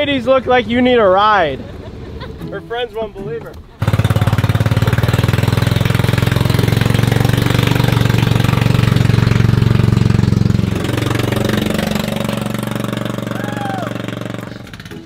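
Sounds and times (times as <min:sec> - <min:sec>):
small engine running: 0:03.8 - 0:15.0.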